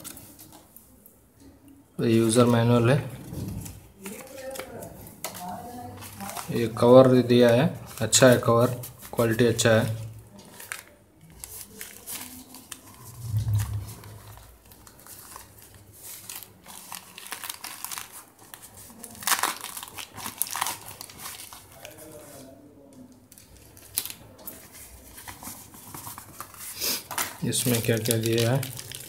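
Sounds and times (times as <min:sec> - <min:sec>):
pouch crinkling and rustling: 0:03.6 - 0:06.9, 0:10.3 - 0:22.4, 0:23.3 - 0:29.0.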